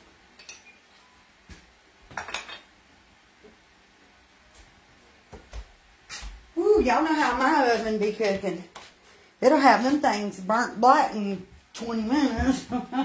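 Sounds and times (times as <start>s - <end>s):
kitchen utensils clinking: 2.2s - 2.7s.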